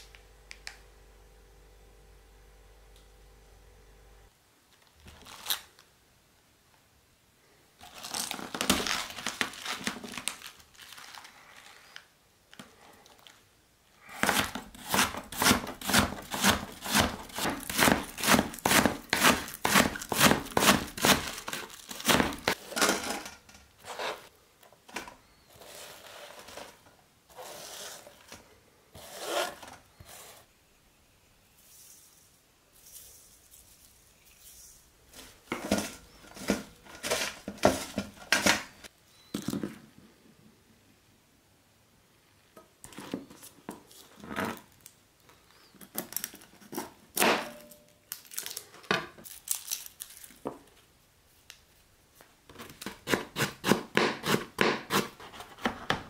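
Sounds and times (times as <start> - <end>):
cabbage rustling in mesh strainer: 14.0 - 23.2
knife chopping cabbage on board: 14.2 - 22.6, 52.8 - 55.9
leaves rustling and crunching: 48.2 - 50.4.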